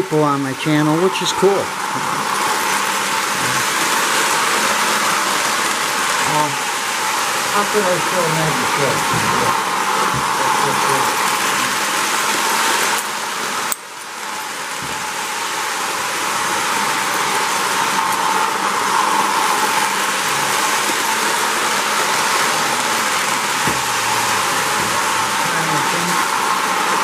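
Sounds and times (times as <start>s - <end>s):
model train whirring on track: 0.0s - 27.0s.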